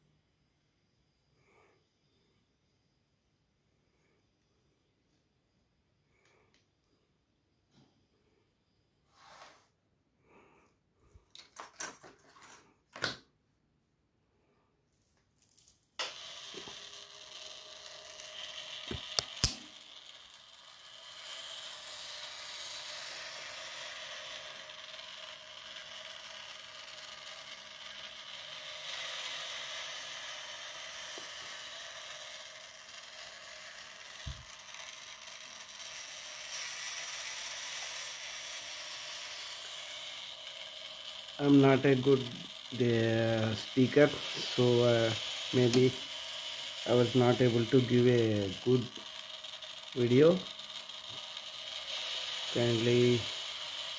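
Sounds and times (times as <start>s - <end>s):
small geared motor running: 16.0s - 53.9s.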